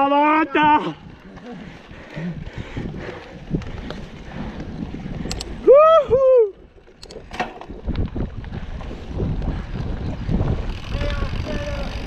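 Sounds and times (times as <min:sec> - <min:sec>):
bike tyres rumbling on dirt: 0:00.0 - 0:12.0
wind on microphone: 0:00.7 - 0:12.0
rider whooping: 0:05.5 - 0:06.7.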